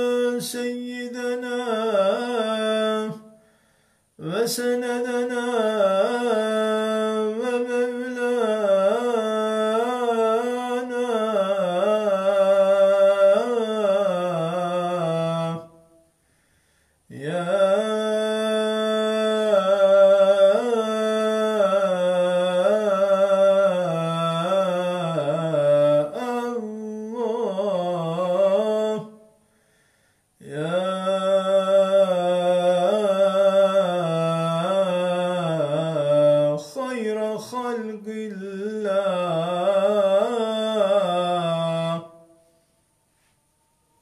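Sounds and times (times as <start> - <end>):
man chanting solo: 0.0 - 3.4, 4.2 - 15.9, 30.4 - 42.3.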